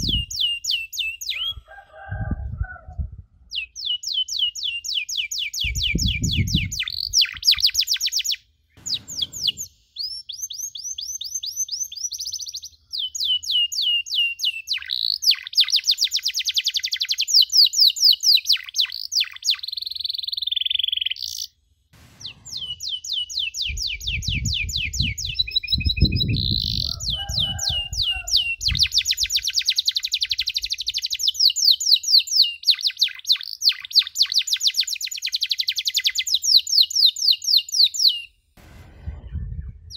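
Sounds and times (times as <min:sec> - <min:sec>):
canary singing trills: 0:00.0 - 0:01.7, 0:03.5 - 0:21.6, 0:22.2 - 0:38.3
low rumble: 0:08.8 - 0:09.8, 0:22.0 - 0:23.0, 0:38.6 - 0:39.9.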